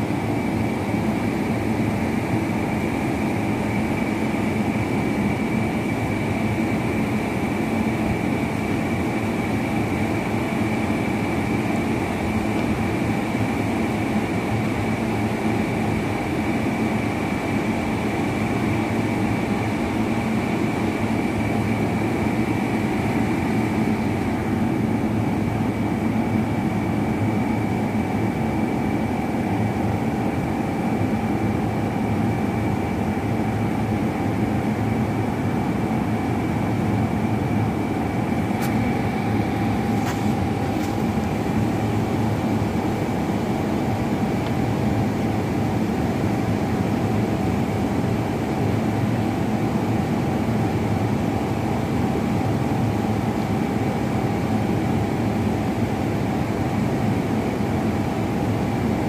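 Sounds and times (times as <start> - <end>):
high machinery whine: 0.0 - 59.0
machinery low hum: 19.4 - 48.0.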